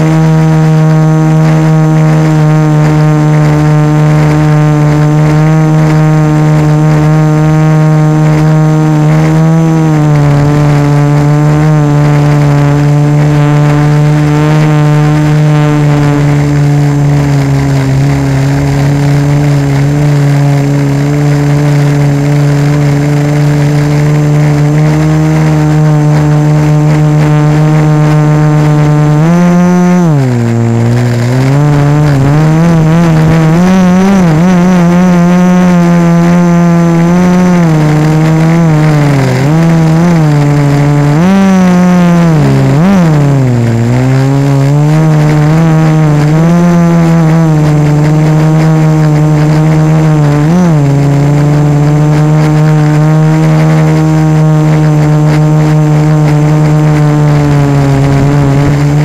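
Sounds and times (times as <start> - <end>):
drone motors buzzing: 0.0 - 59.0.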